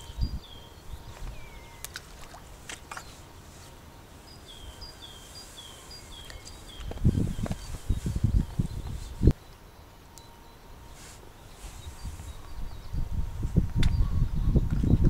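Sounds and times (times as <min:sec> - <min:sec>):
songbird singing short notes: 0:00.0 - 0:02.0.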